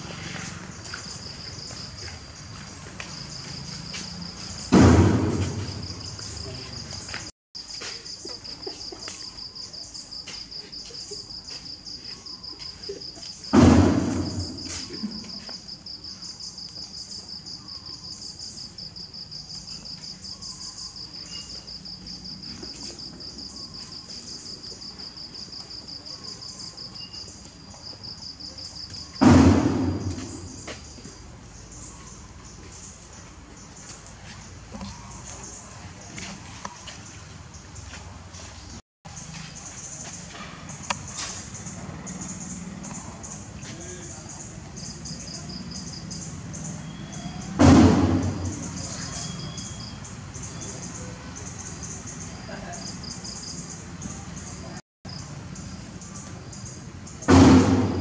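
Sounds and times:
loud thumps: 0:04.7 - 0:06.3, 0:13.5 - 0:15.0, 0:29.2 - 0:30.7, 0:47.6 - 0:48.9, 0:57.3 - 0:58.0.

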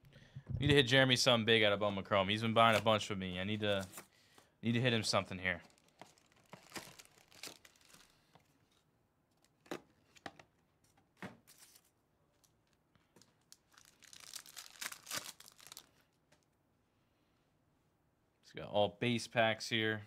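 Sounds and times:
wrapper tearing open: 0:05.6 - 0:08.2, 0:13.4 - 0:15.9.

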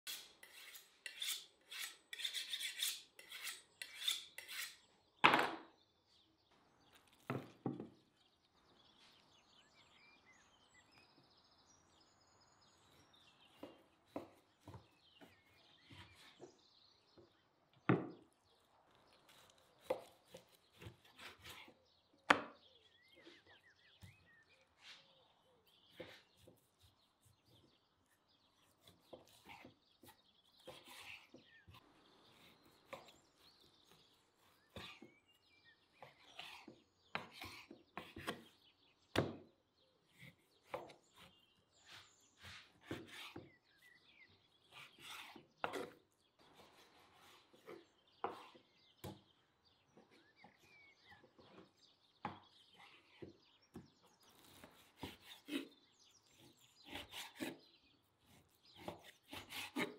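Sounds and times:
knife scraping on sharpening steel: 0:00.1 - 0:04.8
faint bird chirps: 0:18.2 - 0:59.9.

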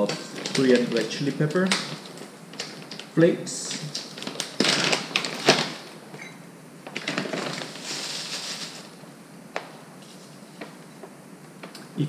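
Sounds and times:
plastic bag crinkling: 0:00.0 - 0:06.1, 0:06.8 - 0:09.1
metal cup scooping flakes: 0:07.6 - 0:08.9.

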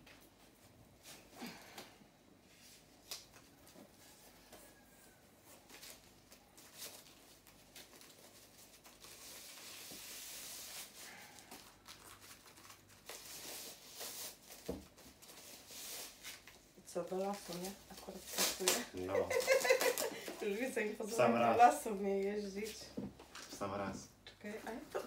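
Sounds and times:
packing wrap rustling: 0:05.4 - 0:21.7.

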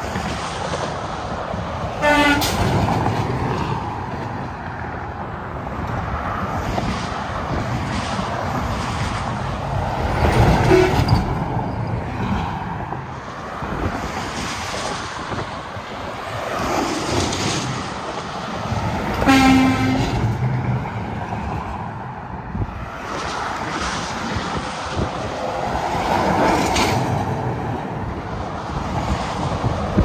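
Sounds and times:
heavy highway traffic: 0:00.0 - 0:30.0
trucks passing: 0:00.0 - 0:30.0
horn blast: 0:02.0 - 0:02.6, 0:19.2 - 0:20.2.

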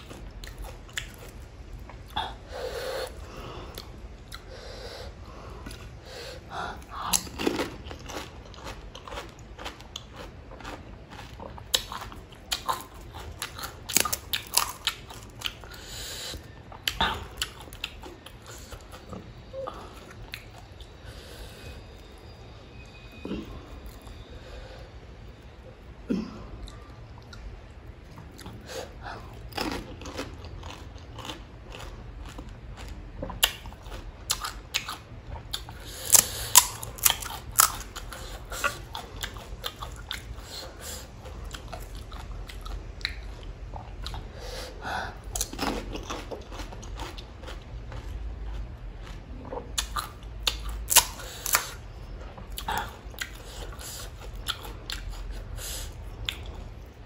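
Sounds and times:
wet chewing: 0:06.8 - 0:21.0, 0:28.1 - 0:44.3, 0:45.2 - 0:56.9.

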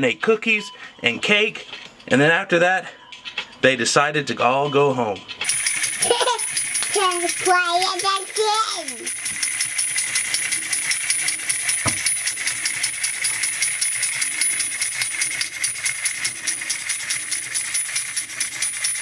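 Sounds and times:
toy cymbals clashing: 0:05.4 - 0:19.0.

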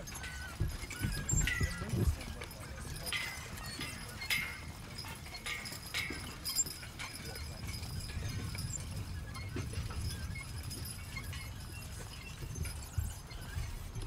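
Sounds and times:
harness clinking: 0:00.0 - 0:14.0
horse hooves: 0:00.0 - 0:14.0
sharp metallic clinks: 0:00.0 - 0:14.0.

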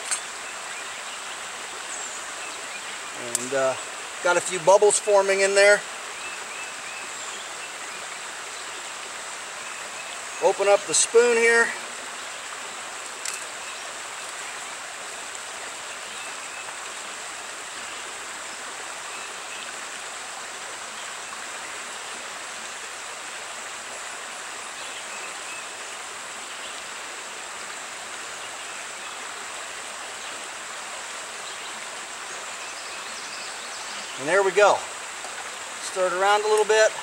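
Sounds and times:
creek water flowing: 0:00.0 - 0:37.0.

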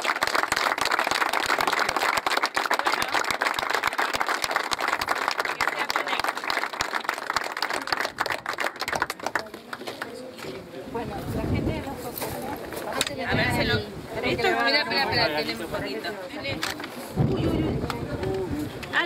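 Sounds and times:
people applauding: 0:00.0 - 0:10.4.

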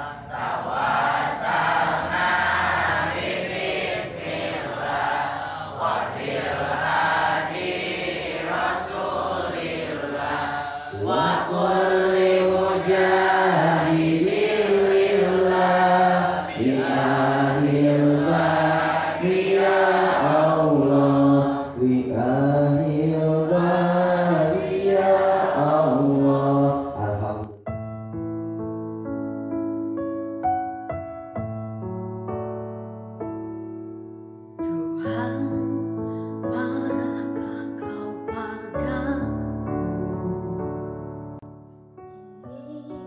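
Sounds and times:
group chanting in unison: 0:00.0 - 0:27.3.

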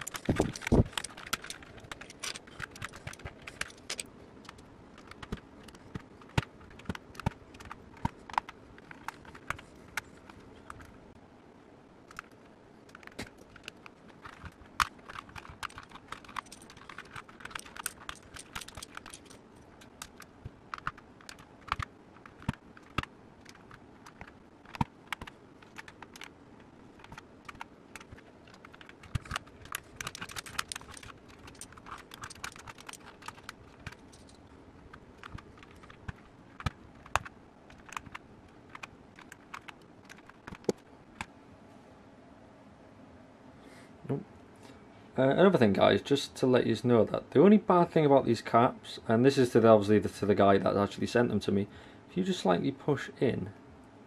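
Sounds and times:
plastic keycap clicks and clacks: 0:00.0 - 0:10.0, 0:12.9 - 0:26.3, 0:27.0 - 0:34.3, 0:35.2 - 0:40.8.

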